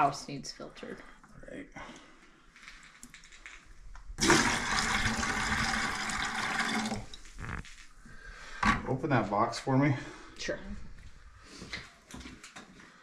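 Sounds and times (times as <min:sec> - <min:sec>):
water pouring into plastic bucket: 0:04.2 - 0:07.7.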